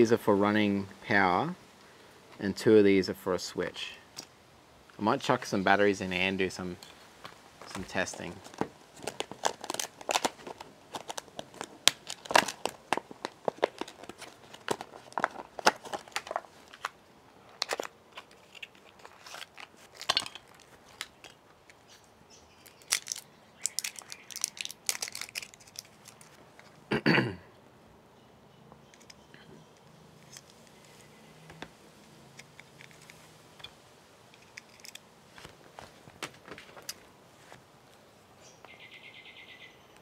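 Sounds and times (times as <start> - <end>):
plastic packaging crinkling: 7.6 - 21.4, 22.6 - 26.8.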